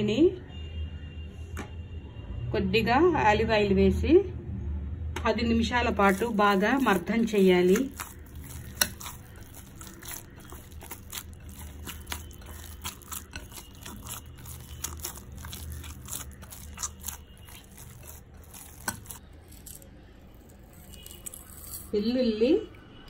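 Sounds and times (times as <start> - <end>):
hands kneading sticky dough: 5.8 - 21.9.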